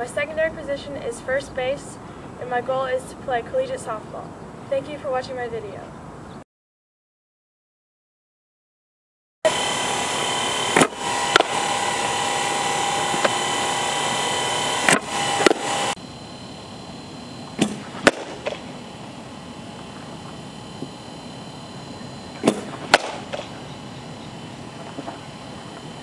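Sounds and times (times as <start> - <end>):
bat hitting balls: 10.7 - 12.2, 14.8 - 15.7, 17.5 - 18.8, 22.4 - 23.7.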